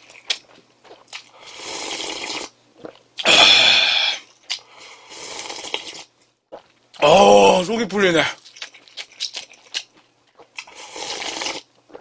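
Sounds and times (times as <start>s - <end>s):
slurping hot broth: 1.4s - 6.1s, 10.6s - 12.0s.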